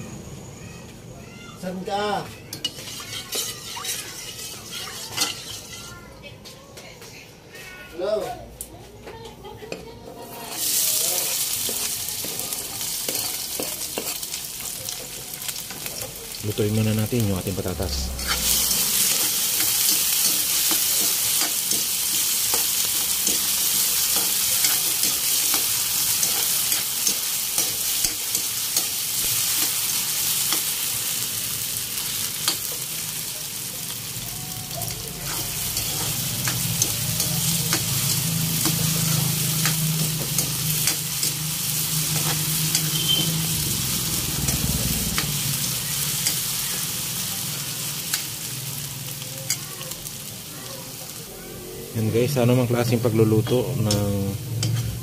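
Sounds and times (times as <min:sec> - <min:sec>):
potatoes sizzling in hot oil: 0:01.8 - 0:06.0, 0:10.2 - 0:55.0
metal spatula scraping a pan: 0:02.5 - 0:06.1, 0:18.0 - 0:30.7, 0:35.2 - 0:48.3.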